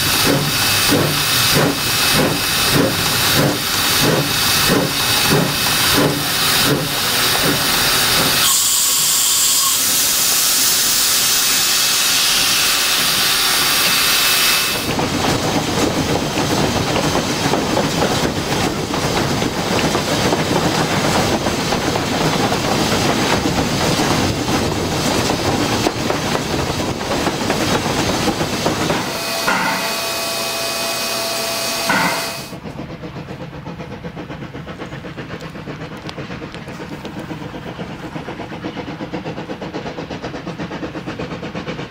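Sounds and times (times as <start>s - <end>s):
loud steam hiss: 0.0s - 41.9s
steam locomotive exhaust beats: 0.0s - 41.9s
train running noise: 0.0s - 41.9s
steam whistle: 8.4s - 12.6s, 29.0s - 32.6s.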